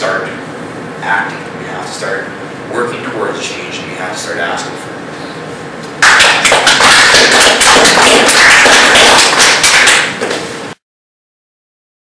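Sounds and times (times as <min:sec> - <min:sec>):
audience applauding: 0:06.0 - 0:10.3.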